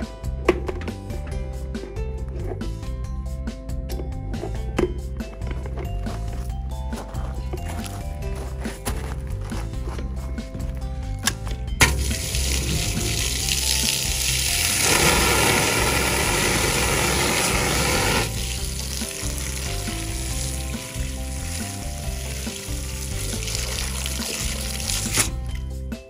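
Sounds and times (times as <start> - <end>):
background music: 0.0 - 26.0
high-pressure water jet hissing: 11.9 - 25.3.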